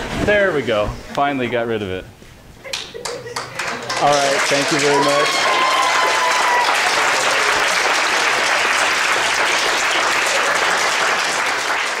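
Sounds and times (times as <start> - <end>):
students applauding: 3.0 - 12.0.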